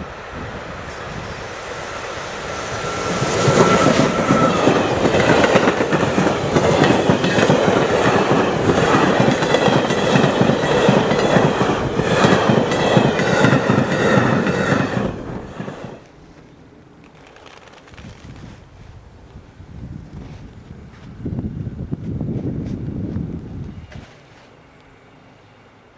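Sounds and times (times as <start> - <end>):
freight train wheels clattering: 2.6 - 16.0.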